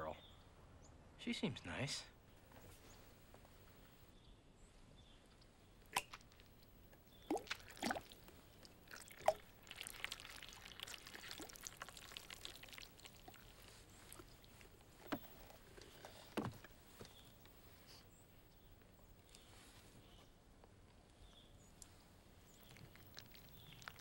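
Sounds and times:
milk pouring into a glass: 0:07.1 - 0:14.5, 0:22.7 - 0:24.0.

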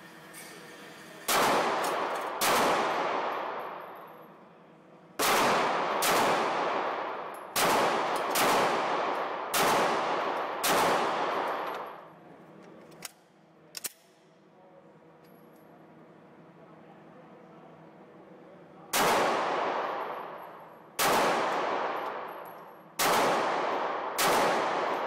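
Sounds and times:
pistol shots echoing: 0:01.3 - 0:04.0, 0:05.2 - 0:12.0, 0:18.9 - 0:25.0.

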